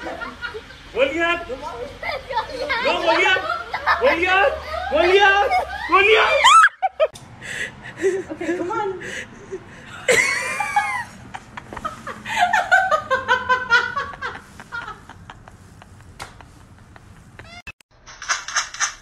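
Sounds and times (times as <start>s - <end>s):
person laughing: 9.4s - 17.6s.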